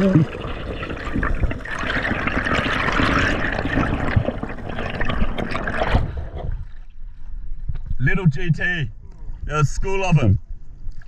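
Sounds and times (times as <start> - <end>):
water rushing and bubbling: 0.0 - 7.5
dull water wash: 0.0 - 8.3.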